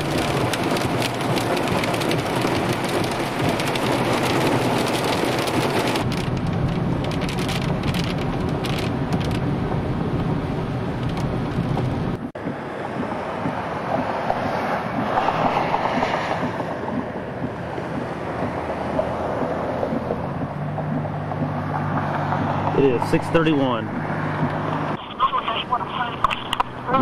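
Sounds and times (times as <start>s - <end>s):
hail and rain on car: 0.0s - 10.4s
moving car low rumble: 0.0s - 27.0s.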